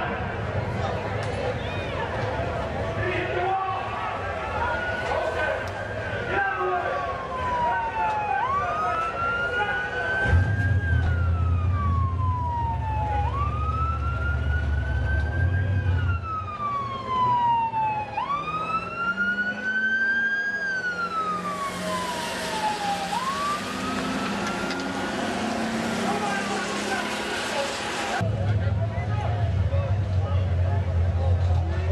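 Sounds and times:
ambulance siren wailing: 4.2s - 28.2s.

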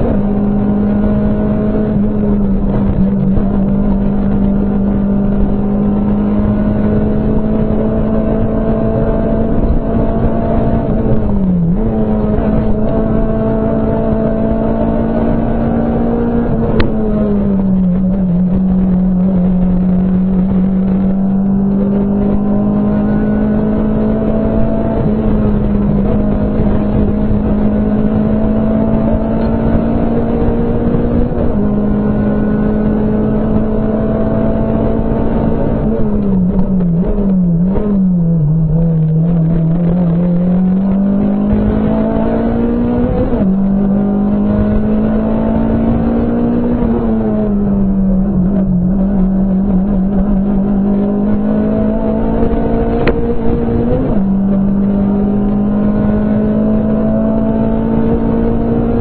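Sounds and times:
rally car engine revving: 0.0s - 59.0s.

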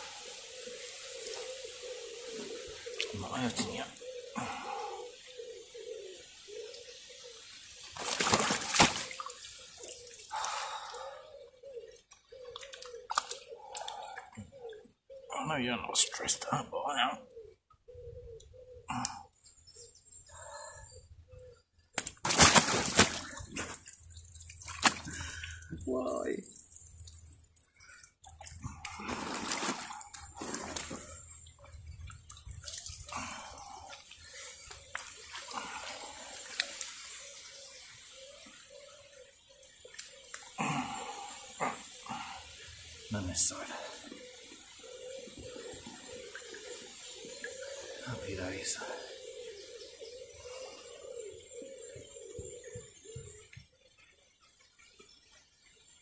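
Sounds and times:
fish splashing in water: 7.8s - 11.1s, 12.5s - 14.4s, 22.0s - 25.8s, 26.5s - 38.1s.

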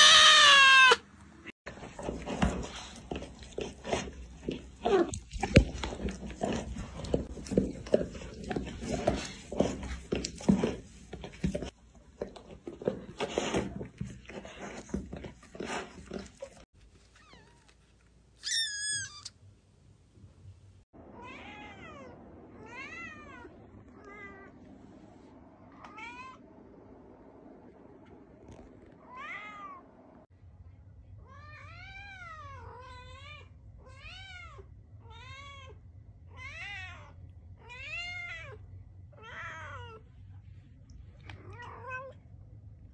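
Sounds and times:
kitten meowing: 0.0s - 1.0s, 18.4s - 19.3s.

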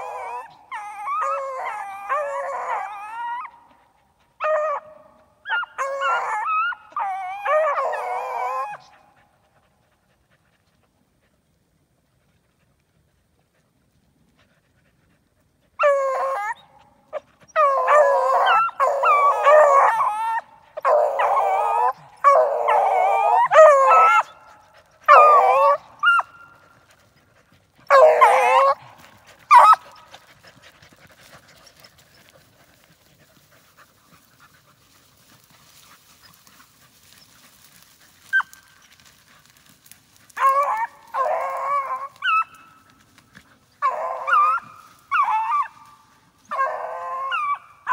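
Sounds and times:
dogs baying: 15.7s - 47.9s
dog yelp: 17.5s - 24.4s, 25.1s - 26.6s, 27.9s - 28.8s, 29.5s - 29.9s.

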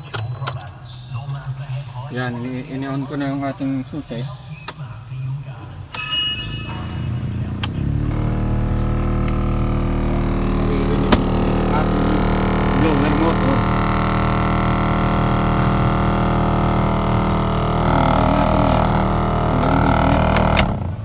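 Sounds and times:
blower motor droning: 6.5s - 21.0s.

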